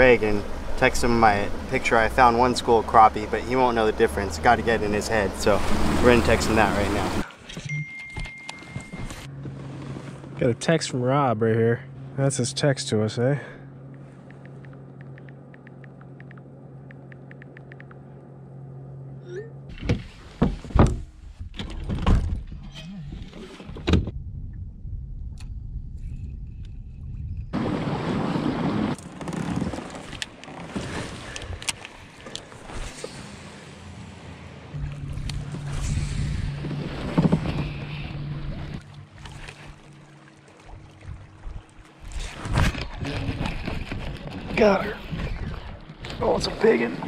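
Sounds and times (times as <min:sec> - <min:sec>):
boat motor humming: 0:00.0 - 0:21.3, 0:26.6 - 0:47.0
low steady rumble: 0:00.0 - 0:23.3, 0:23.9 - 0:27.7, 0:32.4 - 0:47.0
rustling of gear: 0:28.9 - 0:33.4
wind buffeting microphone: 0:34.8 - 0:38.8.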